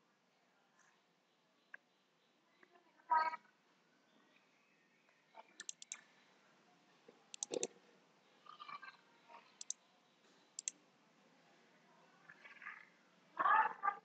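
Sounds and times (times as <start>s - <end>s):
computer mouse button clicking: 5.6s - 6.0s, 7.4s - 7.7s.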